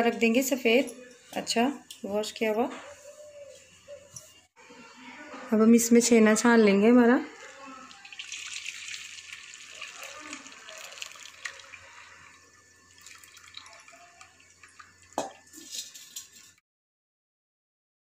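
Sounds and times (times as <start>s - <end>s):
liquid pouring through cloth: 7.8s - 16.2s
liquid trickling and dripping: 7.8s - 16.5s.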